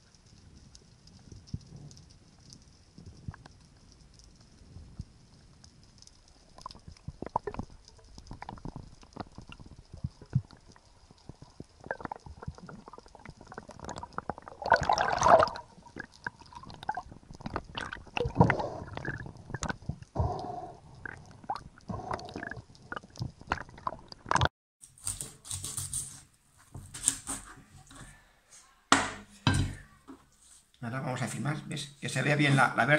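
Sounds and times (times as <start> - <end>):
water bubbling and rushing: 6.3 - 24.5
underwater clicks and knocks: 6.6 - 20.4
knife cutting fish on board: 26.8 - 28.1.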